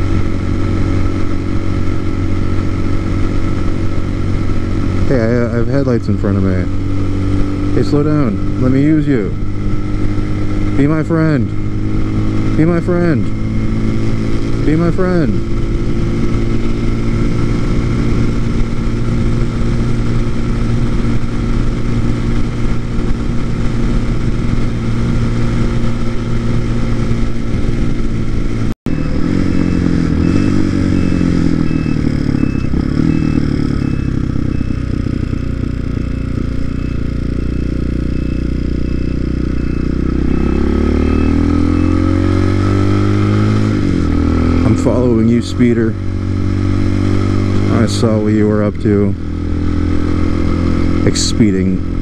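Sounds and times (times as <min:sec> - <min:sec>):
motorcycle engine running: 0:00.0 - 0:52.0
regular beeping: 0:28.9 - 0:43.6.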